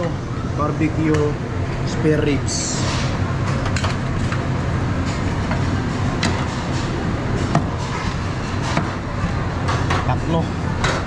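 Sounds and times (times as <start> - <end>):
low background hum: 0.0 - 11.0.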